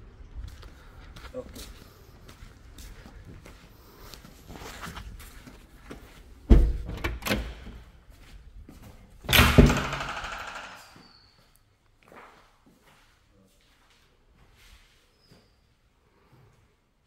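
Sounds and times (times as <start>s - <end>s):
door knock: 9.3s - 10.8s
door latch thunk: 9.3s - 10.8s
door clattering: 9.3s - 11.0s.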